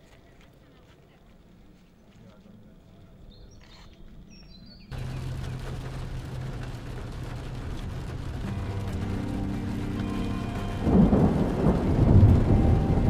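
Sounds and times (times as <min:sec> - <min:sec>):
rain hissing: 0:04.9 - 0:13.0
deep rumbling drone: 0:06.2 - 0:13.0.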